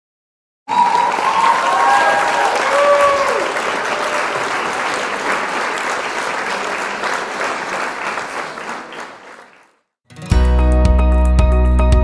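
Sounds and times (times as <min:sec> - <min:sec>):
crowd applauding: 0:00.7 - 0:09.9.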